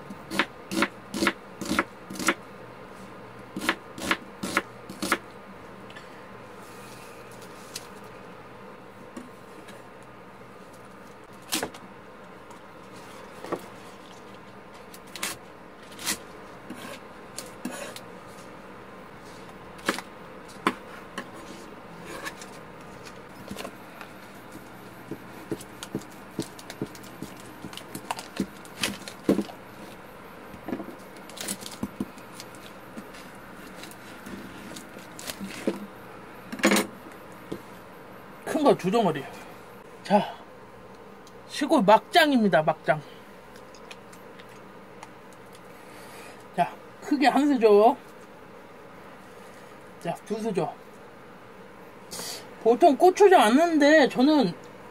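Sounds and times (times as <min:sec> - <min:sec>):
faint hum: 0:00.0 - 0:54.9
knife chopping on wooden board: 0:00.3 - 0:02.4, 0:03.6 - 0:05.2, 0:25.0 - 0:29.6
rustling and scraping: 0:05.9 - 0:08.2, 0:12.4 - 0:37.8.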